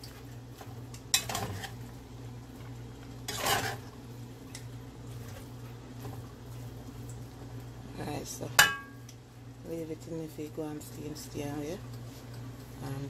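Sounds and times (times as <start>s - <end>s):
steady low hum: 0.0s - 13.0s
spoon scraping pot: 3.3s - 3.8s.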